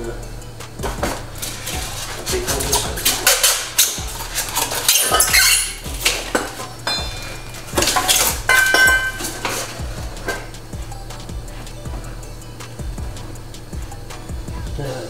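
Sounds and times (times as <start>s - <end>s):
high ringing tone: 4.9s - 14.1s.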